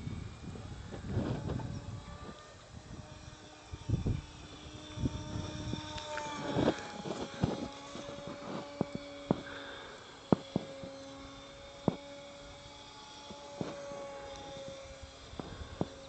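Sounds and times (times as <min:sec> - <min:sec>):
model plane motor humming: 0:00.0 - 0:16.0
sharp clicks: 0:05.8 - 0:09.5.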